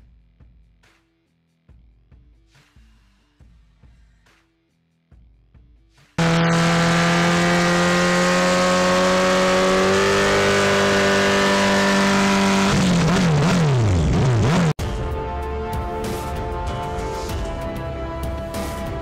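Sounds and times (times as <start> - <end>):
motorcycle engine revving: 6.2 - 14.8.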